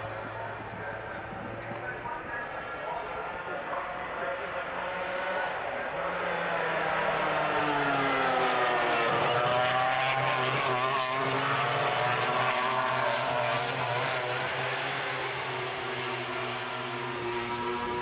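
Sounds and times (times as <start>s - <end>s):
racing motorcycle engines passing: 0.0s - 18.0s.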